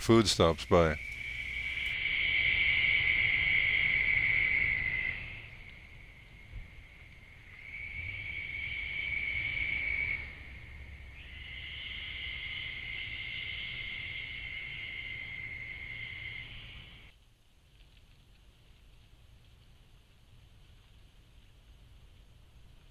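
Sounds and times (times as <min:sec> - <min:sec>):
insects trilling: 0:00.0 - 0:17.1.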